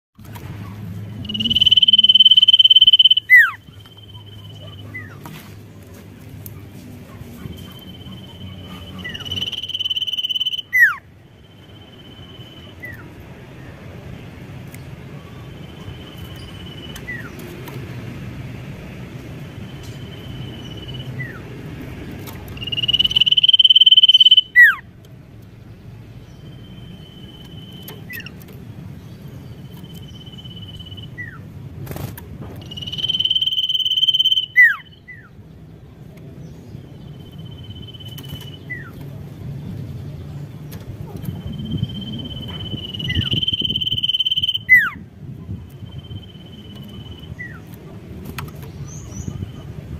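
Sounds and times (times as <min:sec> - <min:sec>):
long loud bird whistle: 0:01.2 - 0:03.6, 0:08.7 - 0:11.0, 0:22.6 - 0:24.8, 0:32.6 - 0:35.2, 0:41.6 - 0:45.0
bird whistling: 0:01.2 - 0:05.2, 0:07.6 - 0:11.0, 0:22.6 - 0:24.8, 0:32.6 - 0:35.3, 0:41.4 - 0:45.0.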